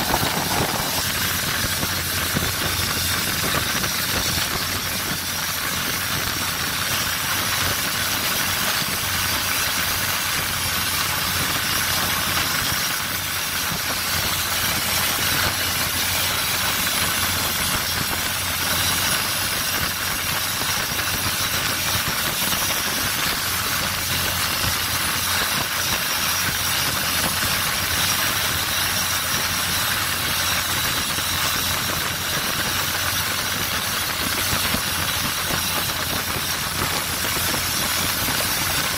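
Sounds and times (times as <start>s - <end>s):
wind and water rushing: 0.0s - 3.0s
boat engine running: 0.0s - 38.9s.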